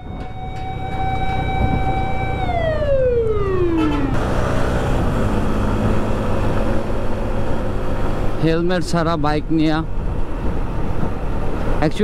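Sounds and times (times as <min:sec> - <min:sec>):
ambulance siren: 0:00.0 - 0:04.5
motorcycle engine: 0:00.0 - 0:08.2
wind noise: 0:00.0 - 0:08.2, 0:09.8 - 0:12.0.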